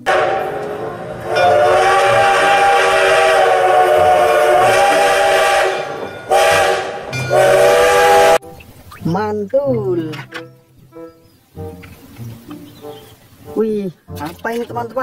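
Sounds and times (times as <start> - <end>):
steam locomotive whistle: 0.0 - 8.4.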